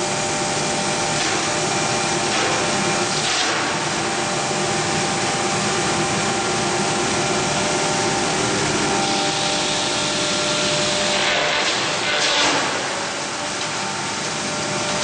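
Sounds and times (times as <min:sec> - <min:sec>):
hammer mill grinding wood: 0:06.2 - 0:15.0.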